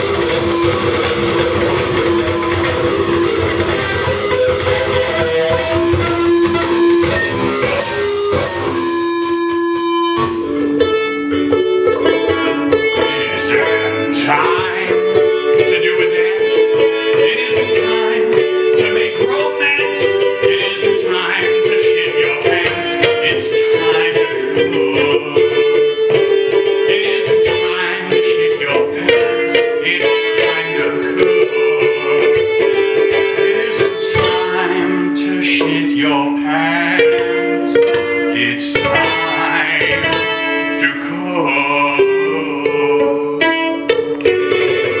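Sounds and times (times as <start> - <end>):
plucked ukulele: 0.0 - 45.0
people singing: 12.2 - 43.9.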